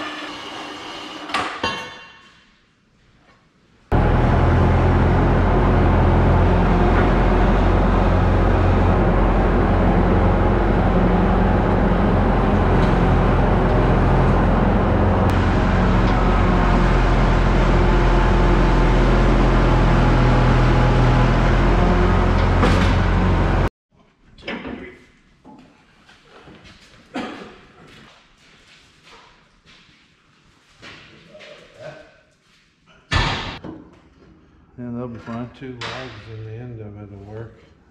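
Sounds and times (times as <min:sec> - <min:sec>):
loader engine running: 0:03.9 - 0:23.7.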